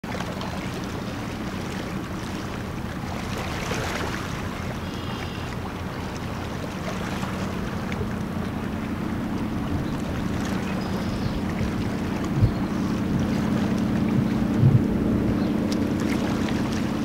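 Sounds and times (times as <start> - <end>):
ship diesel engine drone: 0.1 - 17.0
wind on microphone: 9.4 - 17.0.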